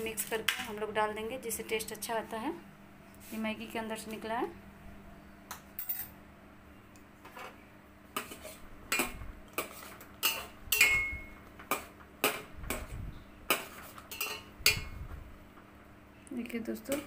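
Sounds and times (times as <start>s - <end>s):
metal spoon clinking in steel pot: 10.2s - 11.3s, 14.1s - 14.9s.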